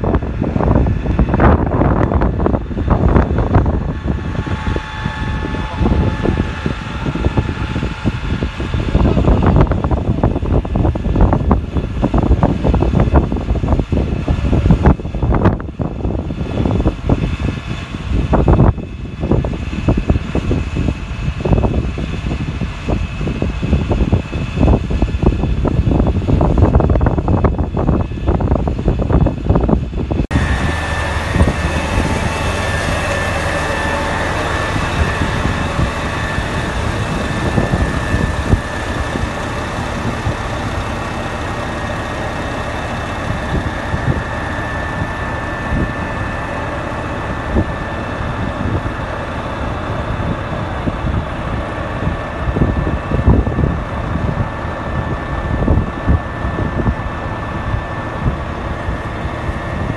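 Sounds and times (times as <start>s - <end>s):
faint steady whine: 0.0s - 59.9s
wind buffeting microphone: 0.0s - 59.9s.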